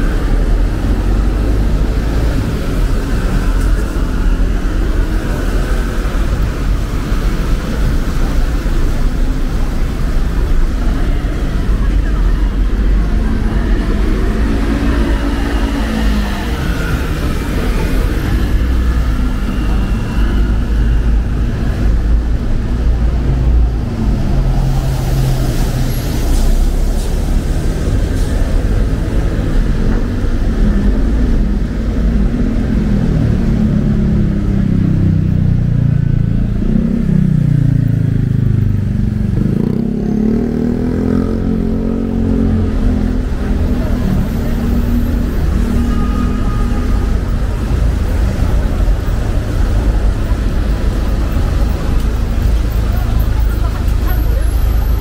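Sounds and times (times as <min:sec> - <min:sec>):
traffic on wet road: 0:00.0 - 0:55.0.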